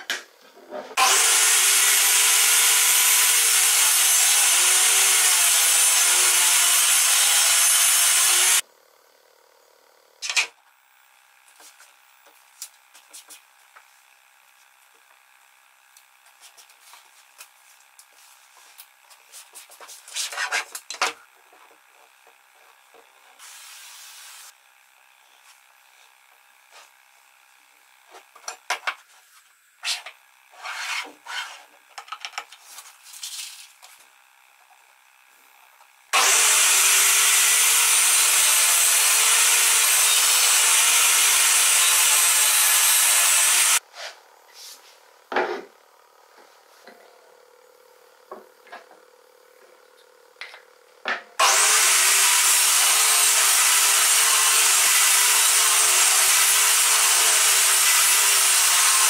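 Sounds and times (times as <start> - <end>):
power tool running: 0.9 - 19.9, 20.7 - 59.0.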